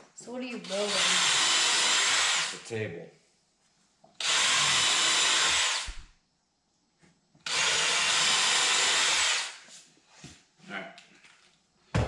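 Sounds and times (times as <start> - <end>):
cordless drill boring into wood: 0.6 - 2.6, 4.2 - 6.1, 7.5 - 9.6.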